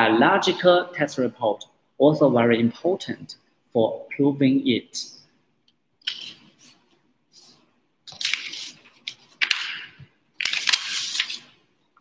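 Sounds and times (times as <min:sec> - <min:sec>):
paper rustling: 0:06.0 - 0:11.5.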